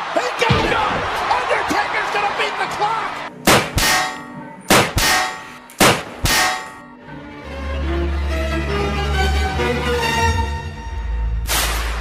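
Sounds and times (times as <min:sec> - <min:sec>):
low droning music: 0:03.3 - 0:12.0
metal pan clanging: 0:03.7 - 0:04.4, 0:05.0 - 0:07.0.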